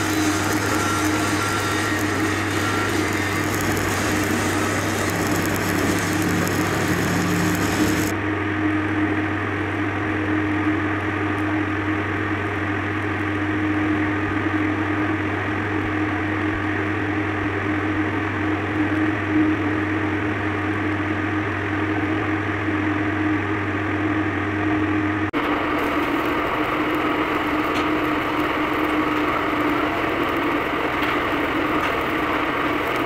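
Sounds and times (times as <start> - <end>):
welding arc crackling: 0.0 - 8.1, 25.4 - 33.0
steady low hum: 0.0 - 33.0.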